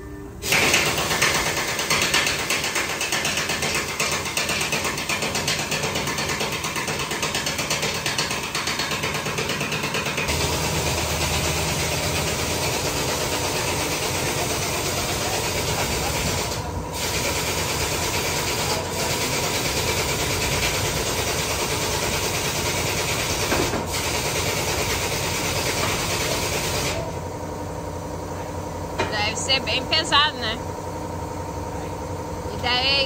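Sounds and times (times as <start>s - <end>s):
workshop noise hiss: 0.0s - 30.7s
engine idling: 10.3s - 22.6s.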